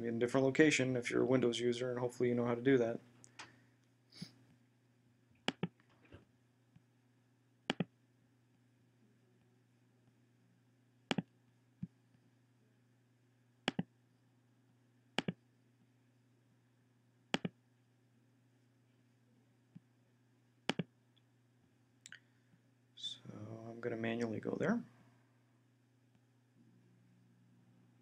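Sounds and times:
faint low hum: 0:00.0 - 0:28.0
computer mouse clicking: 0:05.4 - 0:05.8, 0:07.7 - 0:07.9, 0:13.7 - 0:13.9, 0:15.2 - 0:15.4, 0:17.3 - 0:17.6, 0:20.7 - 0:20.9.

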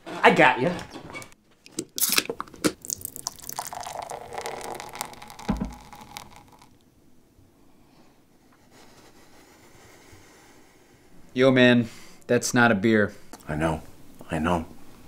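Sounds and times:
can cracked open with hiss: 0:02.0 - 0:02.8, 0:04.3 - 0:06.7
beer pouring and foaming: 0:02.0 - 0:06.8.

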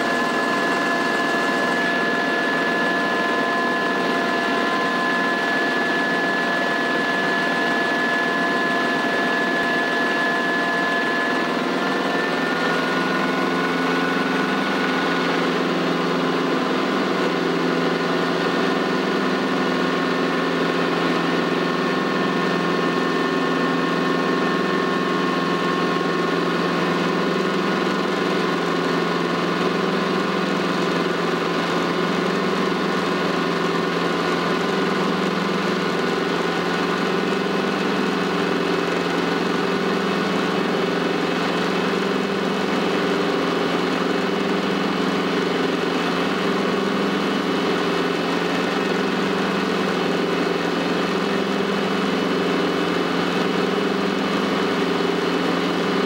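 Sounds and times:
helicopter engine and rotors droning: 0:00.0 - 0:56.0.

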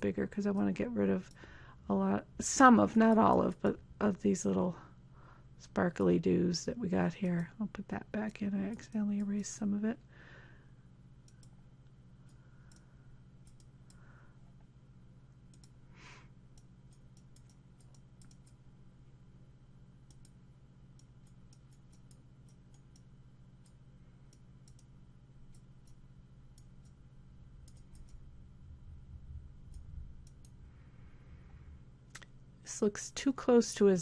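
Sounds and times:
low steady hum: 0:00.0 - 0:34.0
computer mouse clicks: 0:11.2 - 0:11.6, 0:12.3 - 0:14.0, 0:15.5 - 0:15.8, 0:16.5 - 0:18.6, 0:20.0 - 0:20.4, 0:21.0 - 0:24.9, 0:25.5 - 0:27.0, 0:27.6 - 0:28.2, 0:29.7 - 0:30.6.

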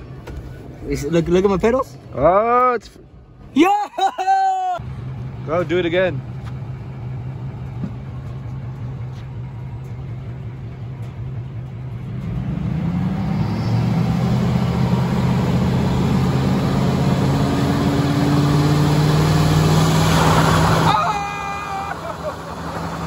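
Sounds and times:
tire spinning on pavement: 0:04.4 - 0:23.0
truck engine revving: 0:04.8 - 0:23.0.

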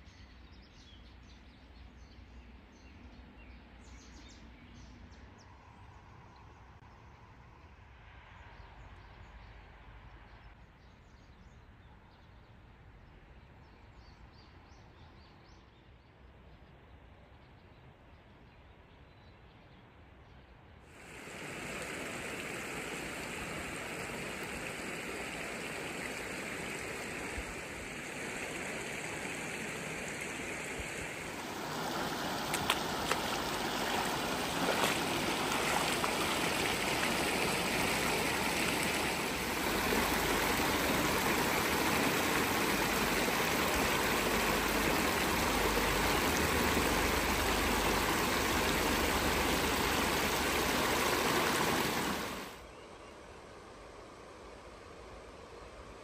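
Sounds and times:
stream rushing over stones: 0:21.0 - 0:52.6.

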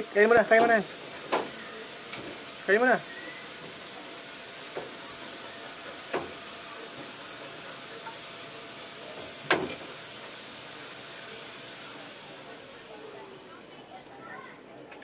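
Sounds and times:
steady hiss: 0:00.0 - 0:12.6.

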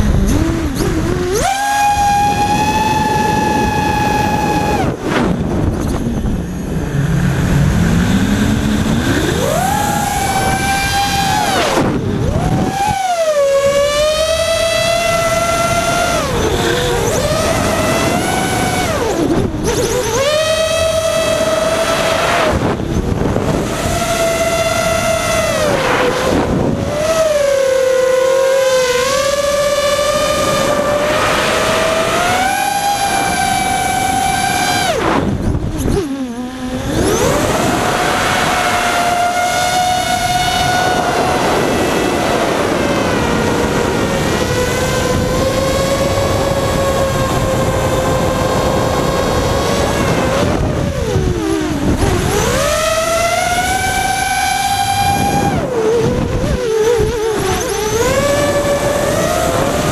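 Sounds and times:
drone propellers whining: 0:00.0 - 0:59.9.

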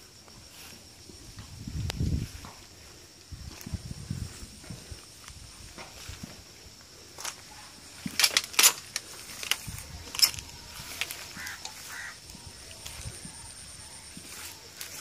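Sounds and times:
footsteps crunching on dry leaves: 0:00.4 - 0:15.0
twigs crackling and snapping: 0:08.0 - 0:12.1.

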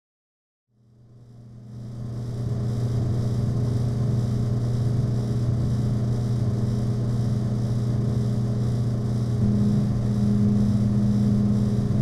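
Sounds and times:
vending machine humming: 0:09.3 - 0:12.0.

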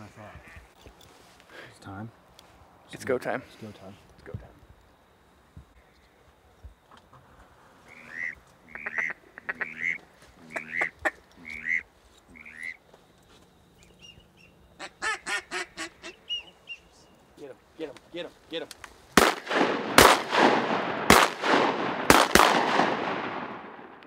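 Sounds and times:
loud quacking calls: 0:07.8 - 0:12.8, 0:14.8 - 0:16.7
goose-like honks: 0:07.9 - 0:12.8.

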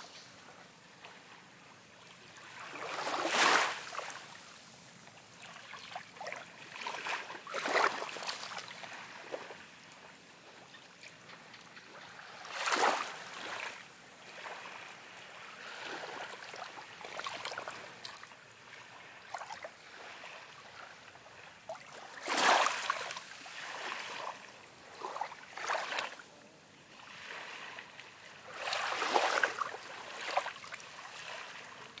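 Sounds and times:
small waves on sandy shore: 0:00.0 - 0:32.0.

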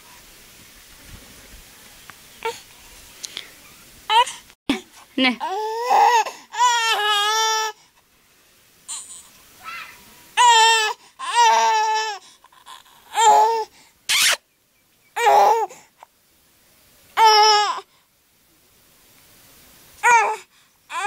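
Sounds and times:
toddler babbling: 0:08.9 - 0:13.7, 0:20.0 - 0:21.0.

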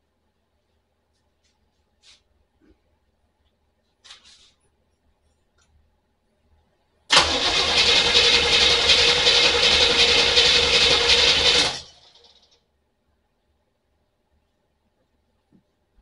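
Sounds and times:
starter motor cranking engine: 0:07.1 - 0:12.6.

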